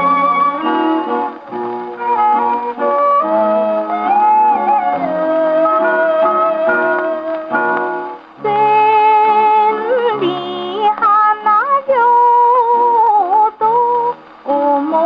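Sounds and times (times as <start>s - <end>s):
gramophone song with orchestra: 0.0s - 10.8s.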